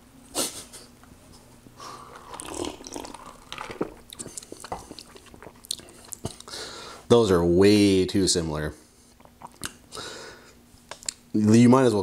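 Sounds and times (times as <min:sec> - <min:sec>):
person sipping a drink: 0:01.8 - 0:06.6
wet mouth sounds and lip smacks: 0:09.2 - 0:09.8.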